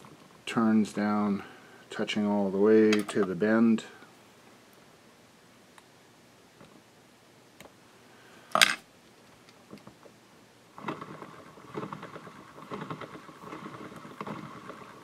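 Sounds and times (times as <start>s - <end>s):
rotary vise whirring: 10.8s - 15.0s.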